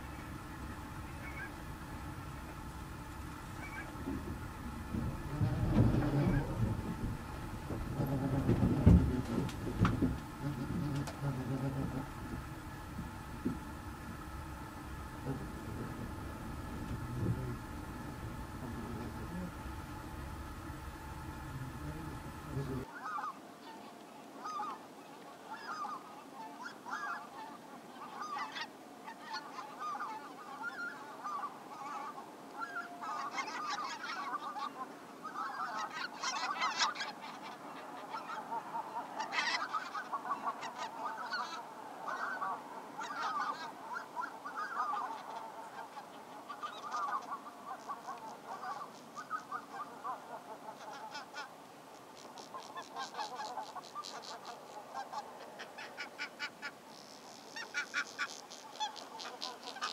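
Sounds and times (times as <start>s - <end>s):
flock of geese calling: 0.0s - 59.9s.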